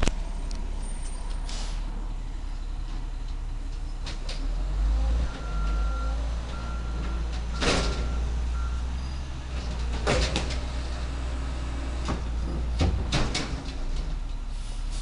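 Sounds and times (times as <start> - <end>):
diesel engine running: 0.0 - 15.0
metal clanks and bangs: 7.0 - 8.2, 9.6 - 10.7, 12.1 - 14.2.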